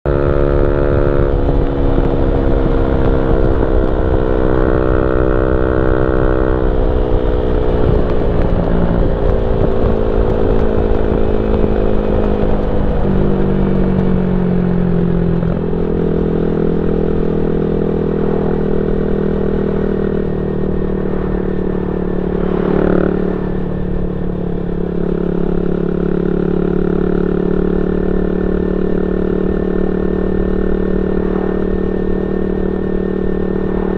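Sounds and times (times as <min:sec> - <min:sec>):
motorcycle engine running: 0:00.0 - 0:33.9
wind rumble: 0:00.0 - 0:33.9.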